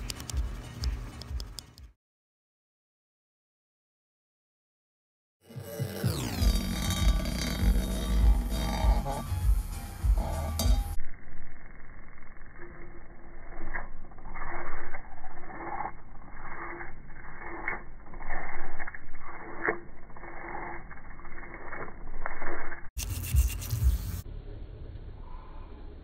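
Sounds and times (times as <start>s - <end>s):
toothbrush scrubbing metal: 0.0s - 1.9s, 6.4s - 11.0s, 14.2s - 24.2s.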